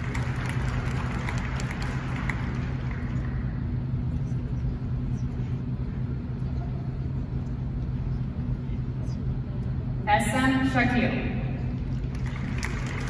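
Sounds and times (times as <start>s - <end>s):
scattered claps: 0.0s - 3.5s, 11.8s - 13.0s
crowd murmur: 0.0s - 10.0s
arena hall hum and rumble: 0.0s - 13.0s.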